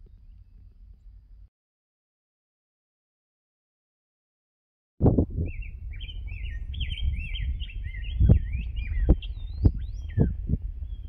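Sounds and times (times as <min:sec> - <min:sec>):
songbirds singing: 0:00.0 - 0:01.4, 0:05.3 - 0:11.0
wind rumble on microphone: 0:05.0 - 0:11.0.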